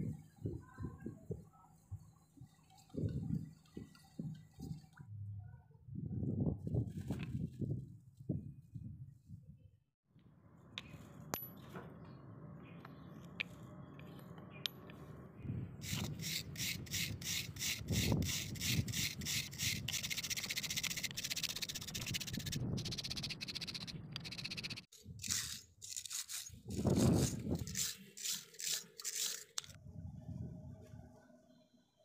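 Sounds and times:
wire brush scrubbing metal: 15.8s - 29.8s.

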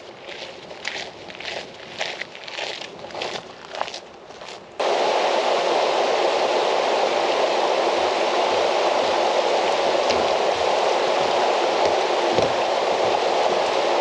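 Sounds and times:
loud steady rushing noise: 4.8s - 14.0s.

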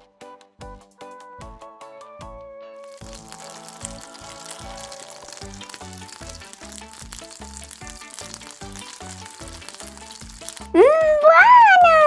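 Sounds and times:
fish sizzling in a frying pan: 2.8s - 11.0s.

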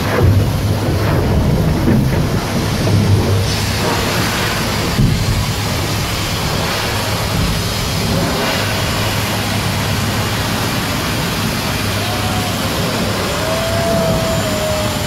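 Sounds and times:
constant rushing noise: 0.0s - 15.0s
low engine drone: 0.0s - 15.0s.

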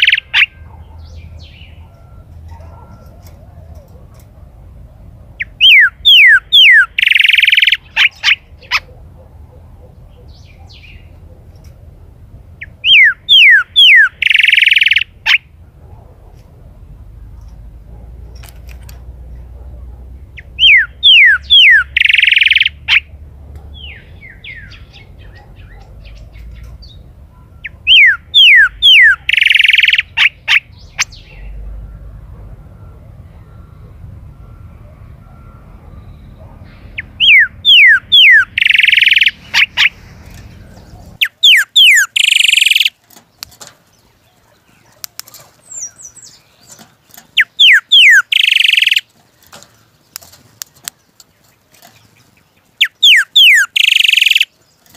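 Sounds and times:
bird singing whistles: 5.4s - 8.4s, 12.8s - 15.1s, 20.6s - 22.8s, 27.6s - 31.3s, 37.0s - 39.9s, 41.2s - 43.0s, 47.4s - 49.1s, 52.8s - 54.5s.

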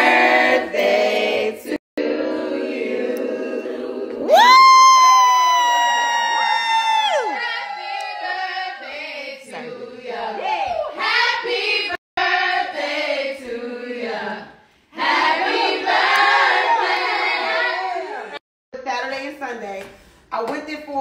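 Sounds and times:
women singing in chorus: 0.0s - 4.5s, 7.1s - 18.4s.

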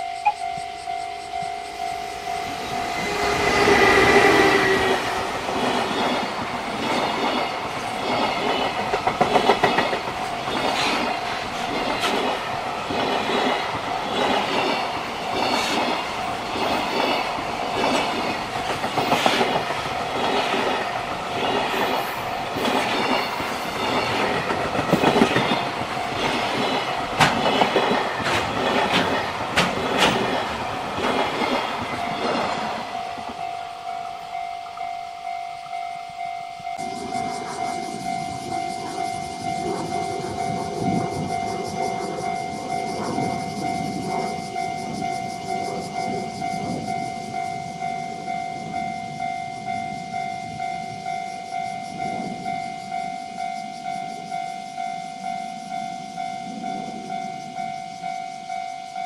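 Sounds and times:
locomotive passing: 0.0s - 47.8s
wagon wheels clattering over rail joints: 5.5s - 32.7s.

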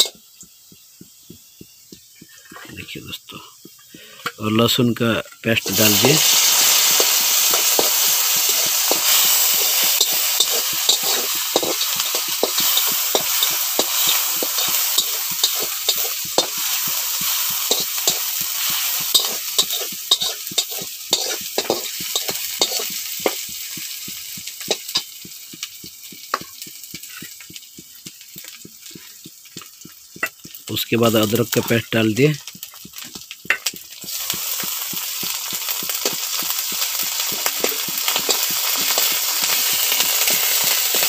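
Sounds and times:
onions sizzling in hot oil: 0.0s - 41.0s
spatula scraping metal pan: 5.7s - 23.4s.

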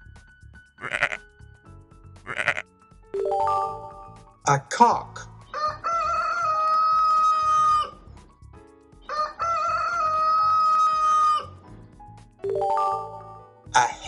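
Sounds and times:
rooster crowing: 5.5s - 8.0s, 9.1s - 11.6s.

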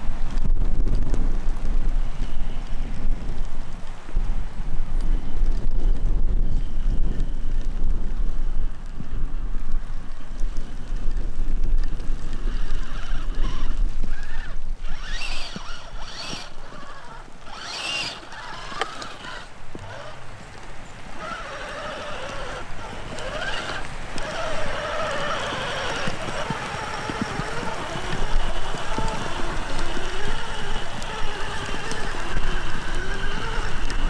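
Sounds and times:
wind rumble on microphone: 0.0s - 34.0s
tyres scrabbling against ground: 10.2s - 34.0s
electric motor whining: 11.8s - 20.2s, 21.1s - 34.0s.

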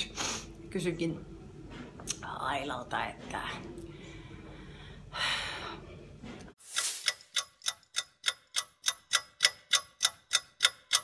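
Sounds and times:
fast clock ticking: 7.3s - 11.0s.

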